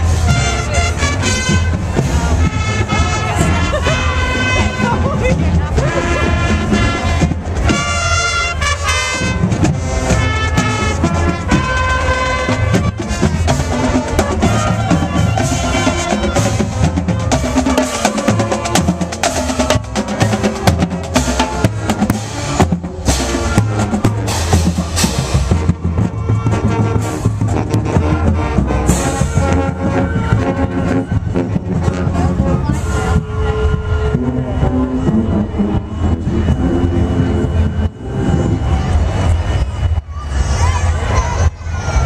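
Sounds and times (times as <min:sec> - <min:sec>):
brass instruments playing: 0:00.0 - 0:40.0
snare and bass drums beating: 0:08.9 - 0:33.3.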